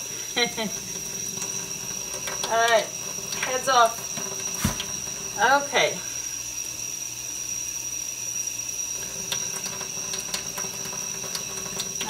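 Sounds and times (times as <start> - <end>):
tap water running into sink: 0.0 - 5.8, 8.8 - 12.0.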